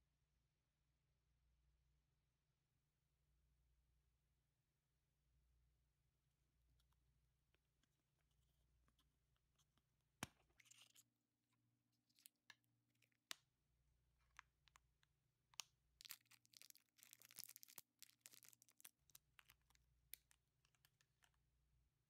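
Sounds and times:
cellophane wrapper crinkling and tearing: 16.0 - 21.2.

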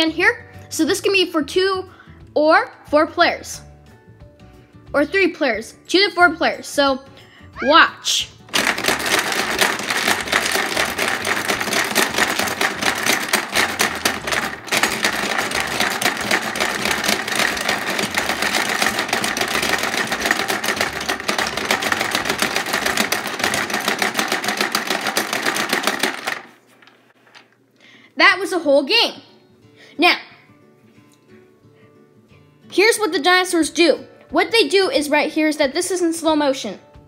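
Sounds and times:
marbles rattling on plastic: 8.5 - 26.6
plastic game pieces clacking: 8.5 - 26.6.

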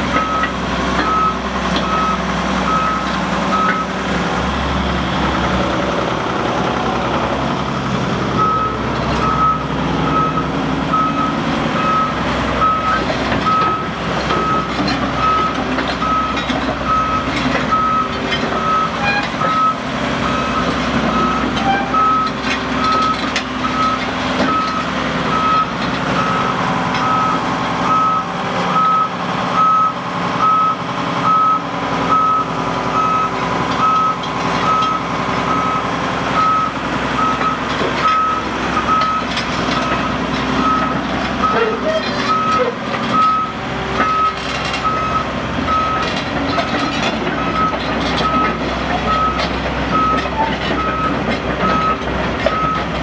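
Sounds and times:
excavator diesel engine running: 0.0 - 53.0
back-up alarm beeping: 0.1 - 3.9, 8.4 - 41.6, 42.3 - 46.8.

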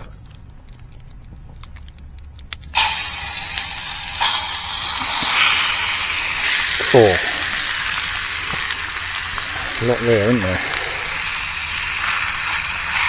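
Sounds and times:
chicken sizzling in oil: 2.8 - 13.0.

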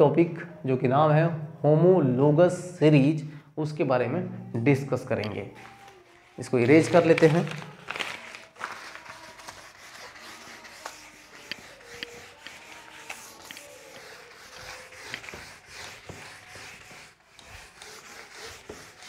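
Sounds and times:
duster scrubbing a whiteboard: 8.4 - 19.0.

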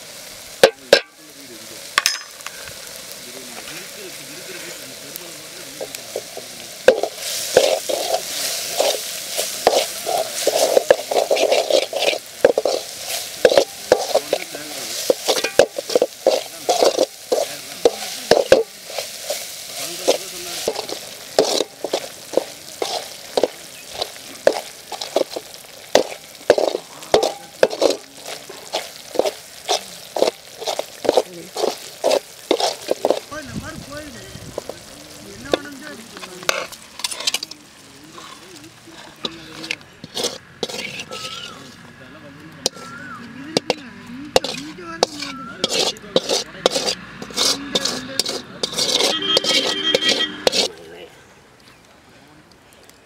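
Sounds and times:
masala sizzling: 0.0 - 53.0
metal ladle scraping a metal pan: 5.8 - 33.3, 36.2 - 38.4, 39.0 - 41.8, 42.6 - 42.9, 43.6 - 50.8.

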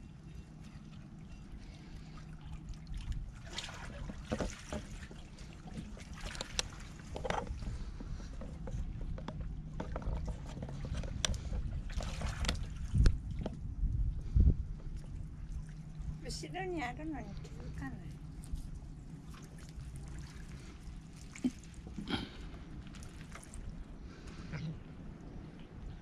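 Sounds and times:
steady low rumble: 5.0 - 26.0
light clicks and knocks: 5.8 - 11.7.

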